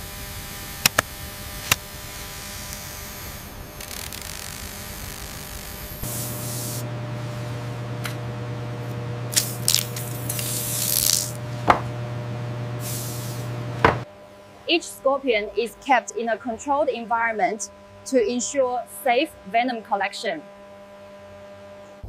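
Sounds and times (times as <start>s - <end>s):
steady low hum: 0.0s - 19.7s
spray bottle misting: 9.3s - 11.4s.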